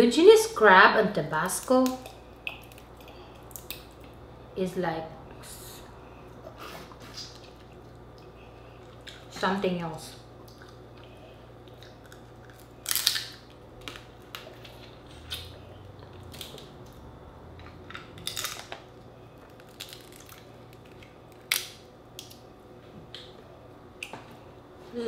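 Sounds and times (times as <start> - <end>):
crab shell cracking: 1.6 - 4.1, 11.6 - 15.4, 17.9 - 22.4.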